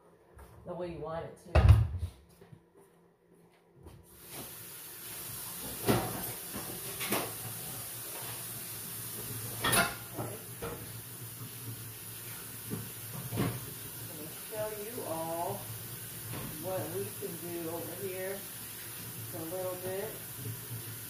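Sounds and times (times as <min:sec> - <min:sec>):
steady hiss with low hum: 0:02.2 - 0:21.0
pots and cupboard doors clattering: 0:05.6 - 0:08.4, 0:09.4 - 0:10.9.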